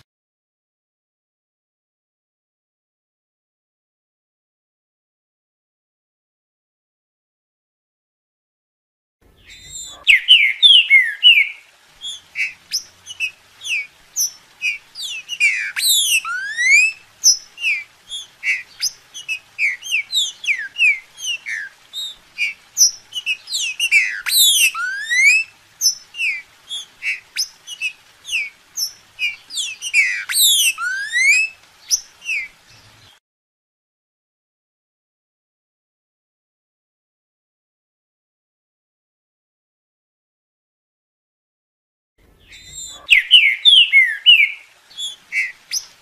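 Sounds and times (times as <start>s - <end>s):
bird singing whistled notes: 9.4s - 33.2s, 42.4s - 46.0s.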